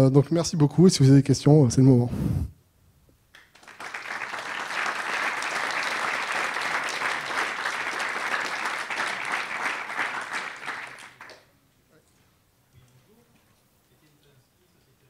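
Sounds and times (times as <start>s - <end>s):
audience applauding: 3.4s - 11.5s.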